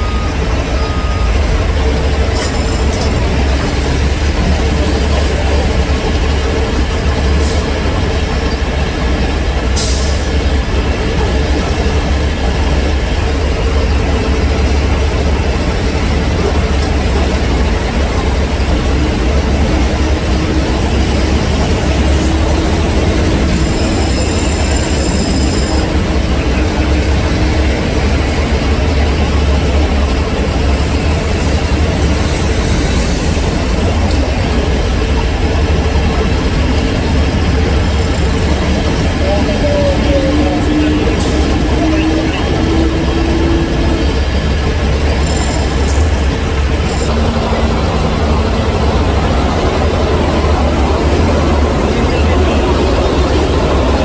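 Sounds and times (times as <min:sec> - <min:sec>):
backup alarm beeps: 0:00.0 - 0:03.4, 0:23.5 - 0:25.9
diesel truck engine rumbling: 0:00.0 - 0:54.0.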